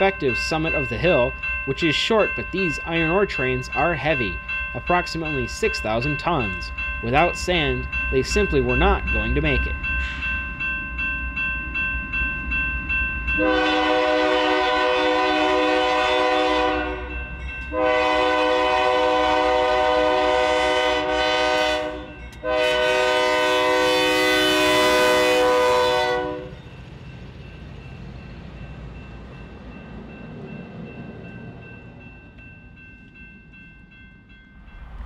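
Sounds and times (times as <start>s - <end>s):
locomotive engine and wheels rumbling: 0.0s - 35.0s
locomotive air horn blasts: 13.4s - 17.1s, 17.7s - 26.5s.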